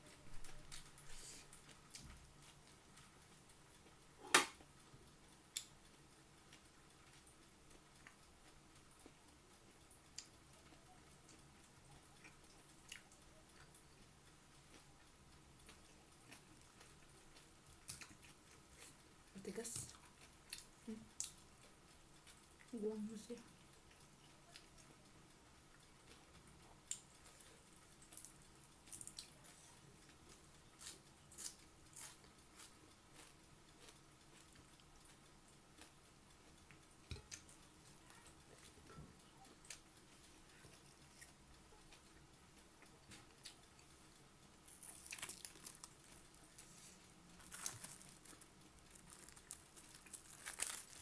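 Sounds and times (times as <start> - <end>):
crunching of chewed onions: 26.8 - 36.0, 44.6 - 51.0.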